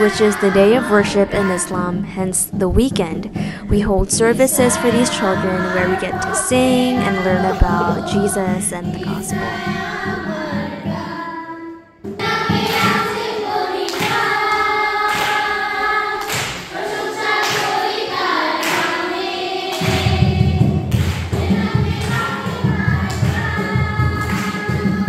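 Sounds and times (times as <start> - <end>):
heavy bass: 0.0 - 9.9
steady thumping beat: 0.0 - 11.4, 12.0 - 25.0
children and women singing: 0.0 - 25.0.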